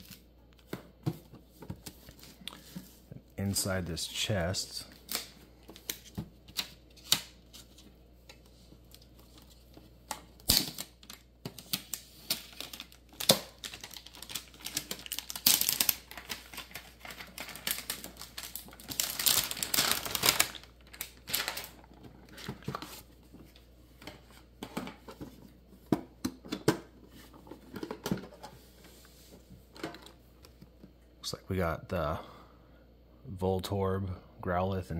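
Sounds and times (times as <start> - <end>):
plastic wrap crinkling: 8.4 - 23.2.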